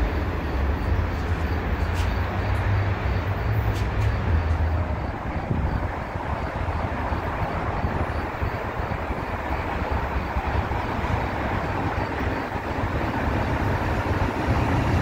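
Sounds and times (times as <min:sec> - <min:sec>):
freight train rumbling: 0:00.0 - 0:15.0.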